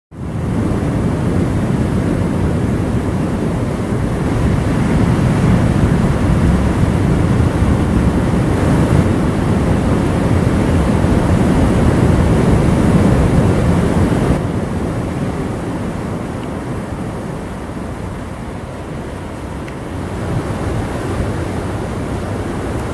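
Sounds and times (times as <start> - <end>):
heavy surf on rocky shore: 0.2 - 22.9.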